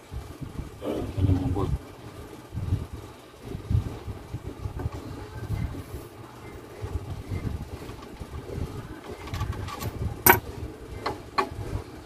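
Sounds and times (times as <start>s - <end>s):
low background rumble: 0.0s - 12.0s
hand tools and bolts clicking: 9.2s - 10.4s.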